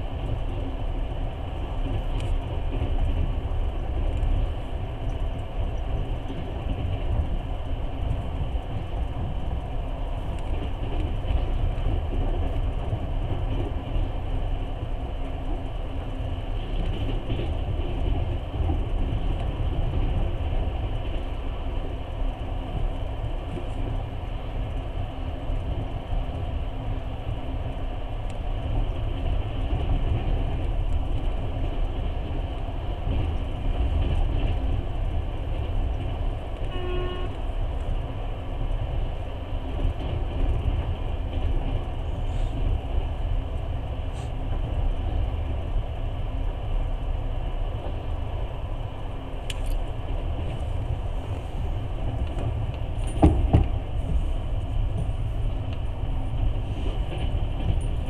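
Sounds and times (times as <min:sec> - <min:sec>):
train rumbling from inside: 0:00.0 - 0:58.0
short train horn toot: 0:36.6 - 0:37.5.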